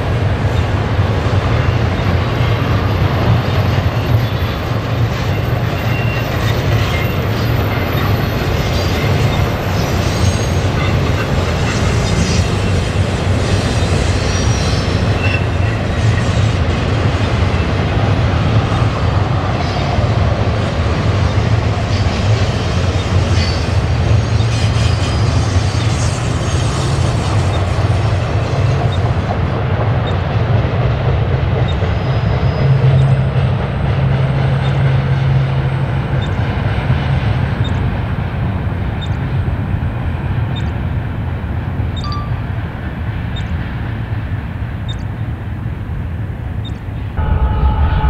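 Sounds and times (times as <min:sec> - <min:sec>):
freight train wheels rumbling on rails: 0:00.0 - 0:48.0.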